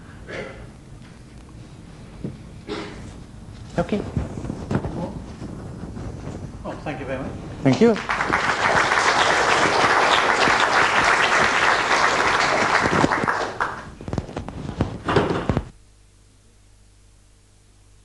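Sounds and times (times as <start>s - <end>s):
faint hum: 0.0s - 18.0s
audience applauding: 7.8s - 14.0s.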